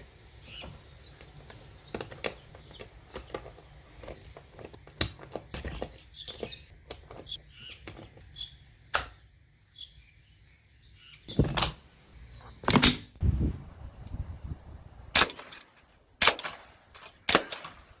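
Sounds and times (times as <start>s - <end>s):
suppressed rifle shots: 15.1s - 17.9s.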